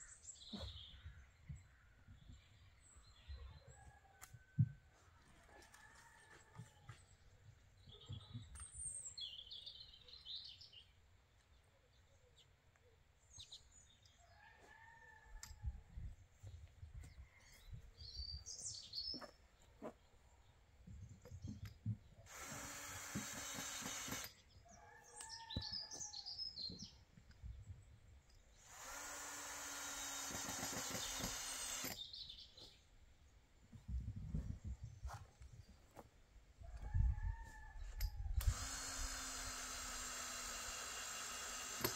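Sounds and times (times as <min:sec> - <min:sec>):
small birds chirping: 0:00.0 - 0:04.0, 0:06.8 - 0:15.4, 0:16.1 - 0:41.8
cordless drill running: 0:22.2 - 0:24.4, 0:28.6 - 0:32.0, 0:38.4 - 0:41.9.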